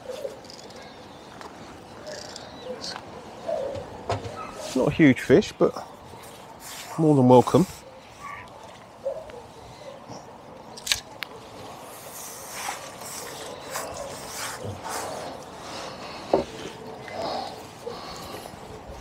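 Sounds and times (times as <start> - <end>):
fishing pole and net clicks: 0.4 - 0.8, 10.7 - 11.4.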